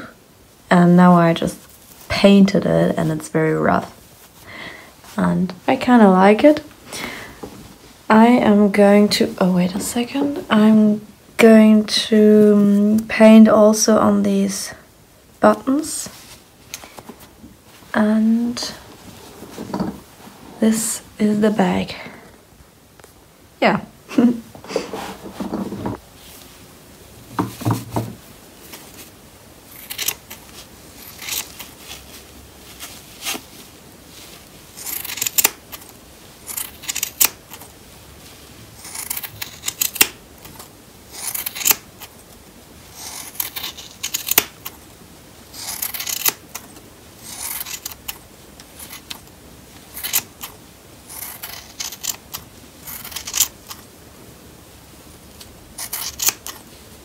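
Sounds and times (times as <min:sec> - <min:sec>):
shears snipping fabric: 0:34.8 - 0:35.9, 0:38.8 - 0:42.2, 0:42.9 - 0:44.8, 0:45.5 - 0:49.3, 0:49.9 - 0:53.8, 0:55.8 - 0:56.6.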